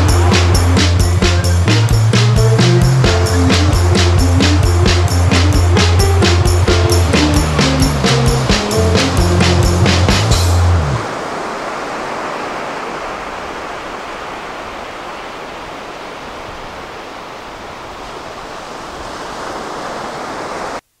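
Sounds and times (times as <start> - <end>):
background music: 0.0 - 11.0
ocean surf on beach: 0.0 - 20.8.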